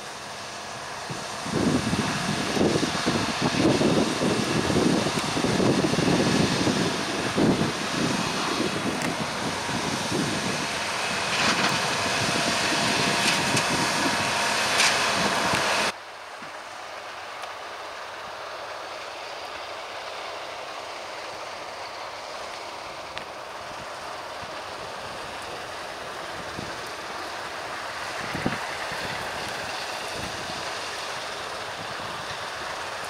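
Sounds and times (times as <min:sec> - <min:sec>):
combine harvester running: 0:00.0 - 0:33.0
wind buffeting microphone: 0:01.0 - 0:15.9, 0:23.5 - 0:32.9.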